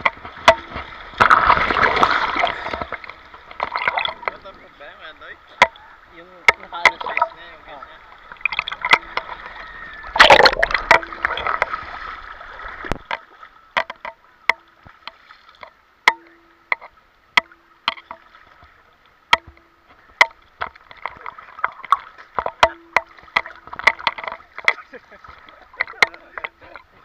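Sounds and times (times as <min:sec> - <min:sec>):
light water lapping: 0:00.0 - 0:27.0
seawater sloshing and splashing: 0:00.0 - 0:27.0
water ticking on camera: 0:00.0 - 0:27.0.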